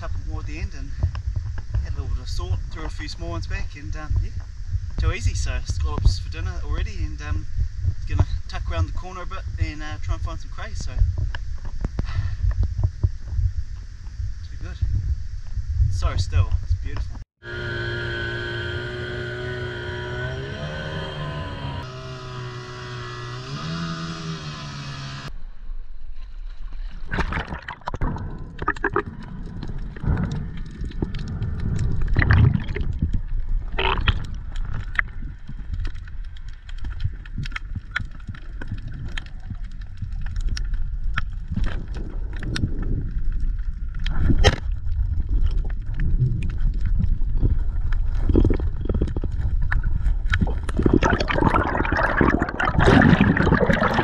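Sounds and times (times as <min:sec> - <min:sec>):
low underwater rumble: 0:00.0 - 0:09.6, 0:10.6 - 0:17.1, 0:25.4 - 0:54.0
outboard motor: 0:17.4 - 0:25.3
underwater gurgling and bubbles: 0:26.6 - 0:54.0
rush of water: 0:27.0 - 0:35.2, 0:49.8 - 0:54.0
sharp underwater clicks: 0:27.1 - 0:54.0.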